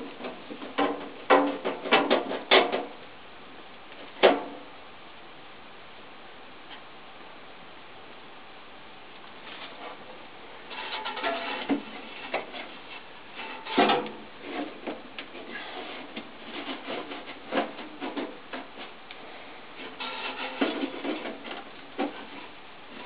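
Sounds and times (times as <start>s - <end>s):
knocks and scraping of sheet metal: 0.0s - 3.0s, 10.7s - 19.0s, 19.8s - 23.0s.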